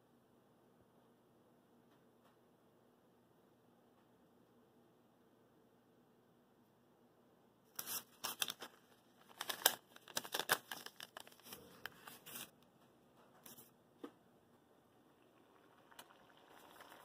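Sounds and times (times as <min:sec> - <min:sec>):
paper crinkling and rustling: 0:07.8 - 0:12.6.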